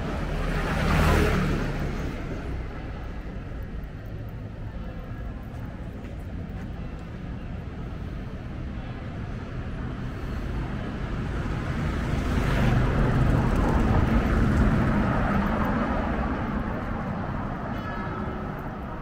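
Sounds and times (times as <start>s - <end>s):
vehicle passing: 0.0s - 3.6s, 10.4s - 17.7s.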